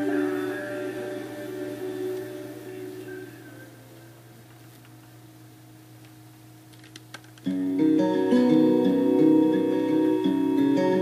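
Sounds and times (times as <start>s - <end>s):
acoustic guitar song: 7.4s - 11.0s.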